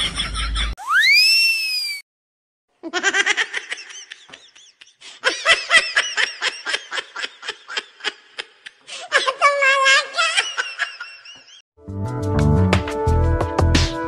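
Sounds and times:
high-pitched laughter: 0:02.8 - 0:11.6.

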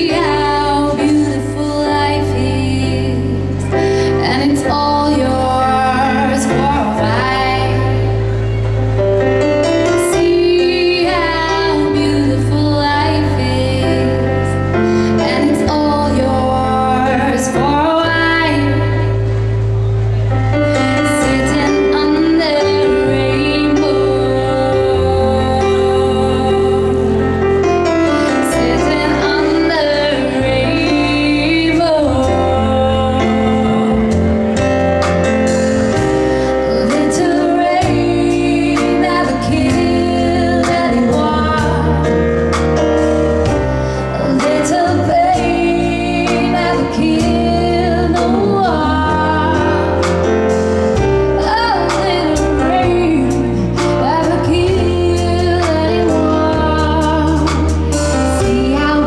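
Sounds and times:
woman singing: 0:00.0 - 0:08.4, 0:09.6 - 0:19.3, 0:20.6 - 0:34.7, 0:35.9 - 0:42.6, 0:43.4 - 0:59.0
double bass: 0:00.0 - 0:59.0
stage piano: 0:00.0 - 0:59.0
drum kit with cymbals: 0:26.8 - 0:59.0.

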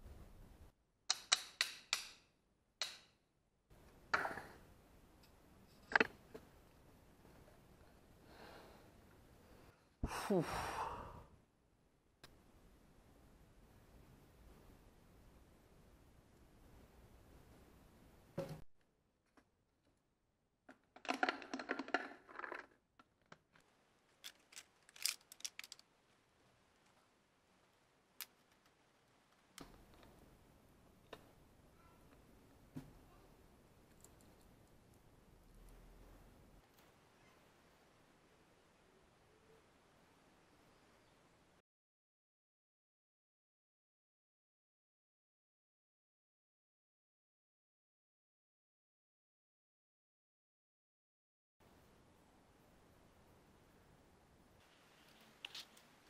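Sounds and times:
metal screws clinking: 0:24.2 - 0:25.8.

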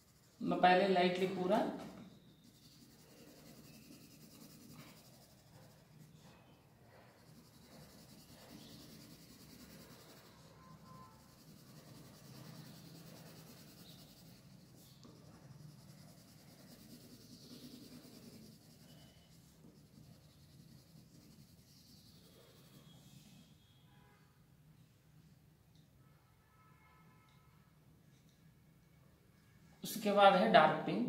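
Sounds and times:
pencil scratching on paper: 0:00.0 - 0:23.1.

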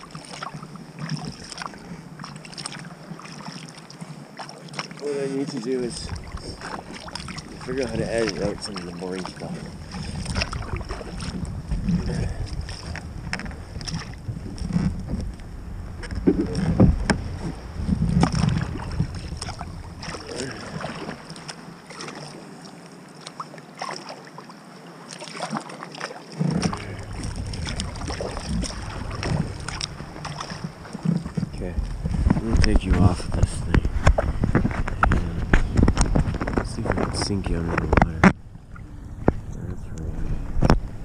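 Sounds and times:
paddle splashes: 0:00.0 - 0:39.5
water sloshing against hull: 0:00.0 - 0:41.0
wind rumble on microphone: 0:05.8 - 0:21.2, 0:26.4 - 0:41.0.

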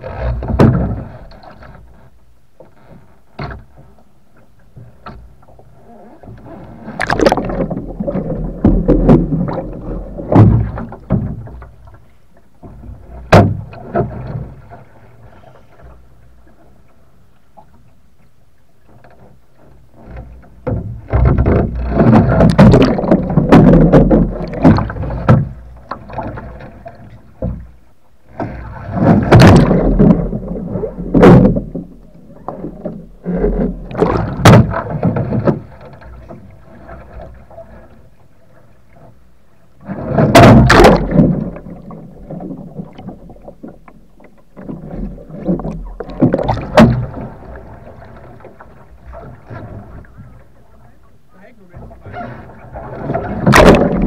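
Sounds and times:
water splashing around kayak: 0:00.0 - 0:54.0
sharp knocks: 0:34.0 - 0:34.8, 0:40.3 - 0:41.5.

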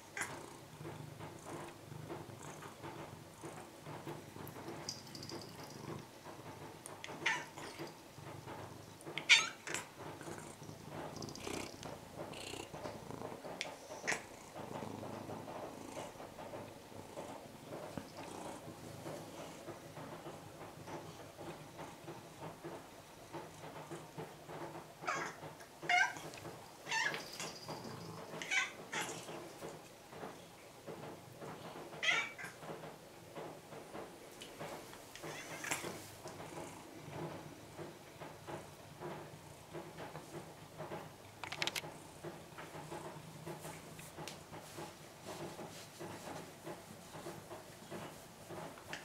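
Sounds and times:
cat purring: 0:00.0 - 0:22.4, 0:26.9 - 0:29.7.

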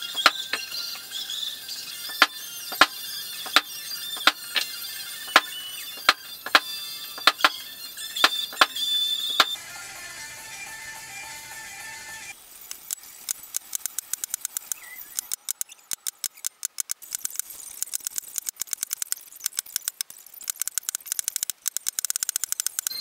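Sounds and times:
background music: 0:00.0 - 0:12.6
mallet tapping leather stamping tool: 0:00.2 - 0:00.6, 0:02.1 - 0:04.7, 0:05.3 - 0:07.6.

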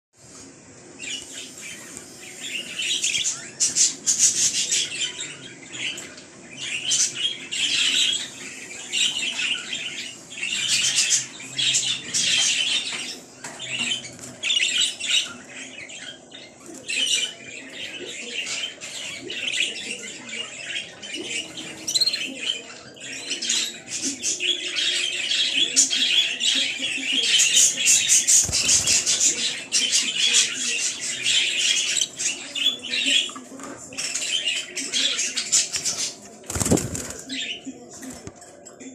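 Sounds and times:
bird wings fluttering: 0:36.4 - 0:37.3.

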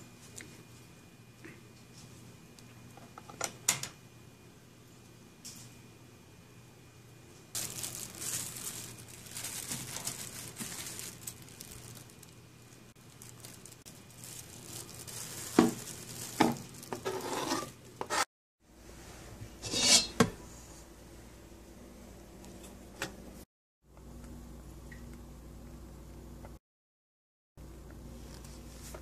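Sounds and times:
plastic bag crinkling: 0:07.6 - 0:18.0.

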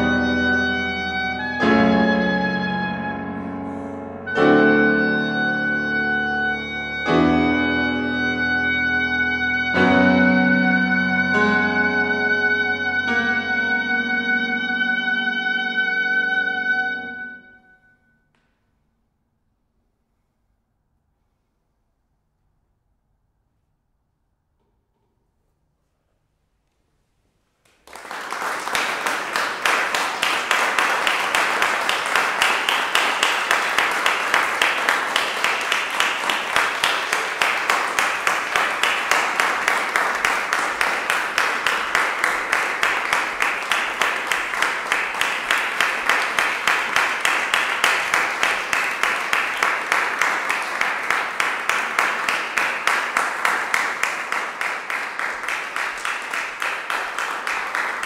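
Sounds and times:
audience rhythmic clapping: 0:27.6 - 0:58.0.

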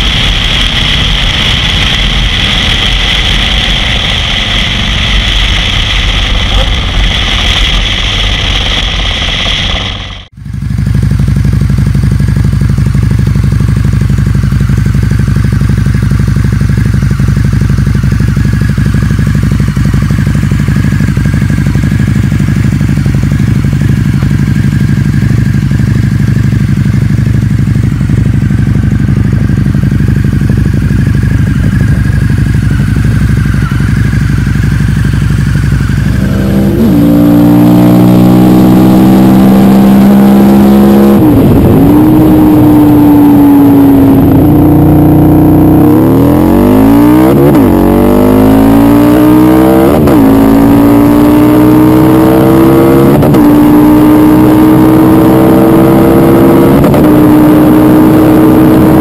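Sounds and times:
motorcycle idling: 0:00.0 - 0:37.1
motorcycle accelerating hard: 0:00.0 - 0:59.0.

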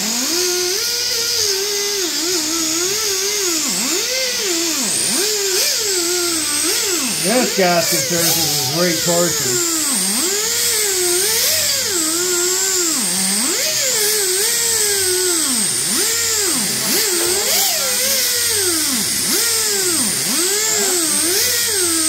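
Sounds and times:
power tool disc whining on metal: 0:09.6 - 0:22.0.

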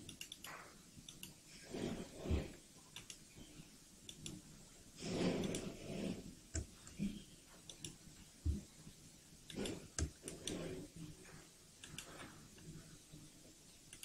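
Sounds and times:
computer mouse clicks: 0:00.0 - 0:02.0, 0:02.9 - 0:03.4, 0:04.1 - 0:04.4, 0:05.0 - 0:08.0, 0:09.5 - 0:10.9, 0:11.8 - 0:12.7.

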